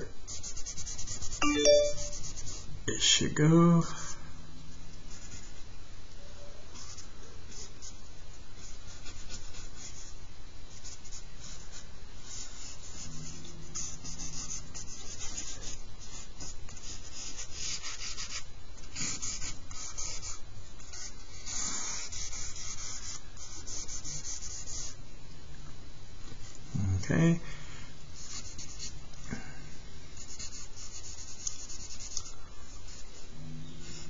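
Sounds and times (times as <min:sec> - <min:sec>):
charcoal scratching on paper: 0:00.0 - 0:01.4, 0:08.6 - 0:10.2, 0:10.8 - 0:25.0, 0:28.2 - 0:29.0, 0:30.2 - 0:34.0.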